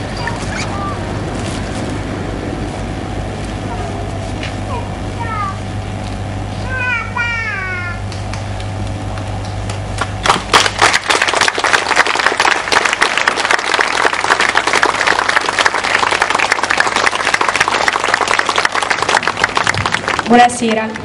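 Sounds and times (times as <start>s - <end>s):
audience applauding: 8.1s - 21.0s.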